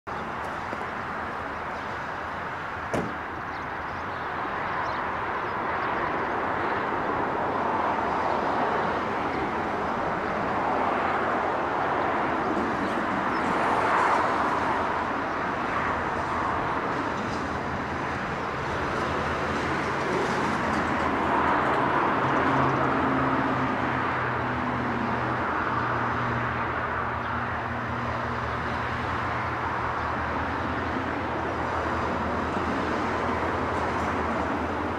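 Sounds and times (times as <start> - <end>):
rushing background noise: 0.1 - 34.9
sharp knock: 2.9 - 3.2.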